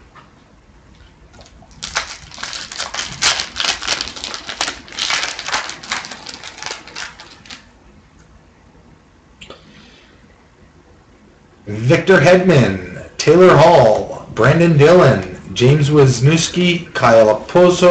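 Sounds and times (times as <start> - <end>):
wrapper tearing and crinkling: 1.4 - 7.7.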